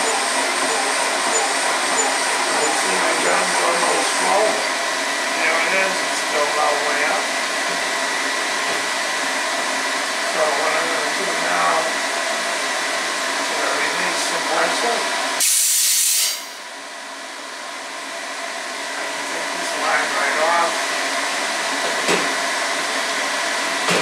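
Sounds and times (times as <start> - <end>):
air compressor running: 0.0 - 24.0
compressed air hiss: 15.4 - 16.6.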